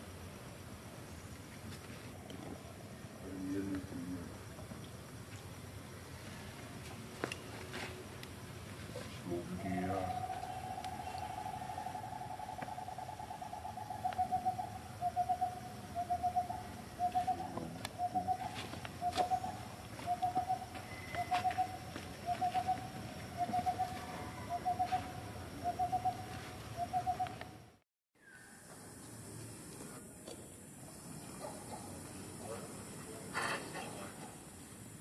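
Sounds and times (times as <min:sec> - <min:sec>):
bird hooting calls: 0:09.4 - 0:27.5.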